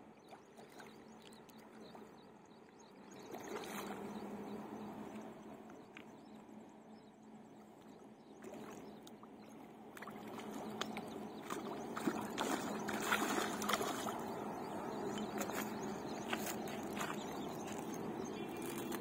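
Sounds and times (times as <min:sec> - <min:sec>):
fish splashing in water: 0:09.9 - 0:18.0.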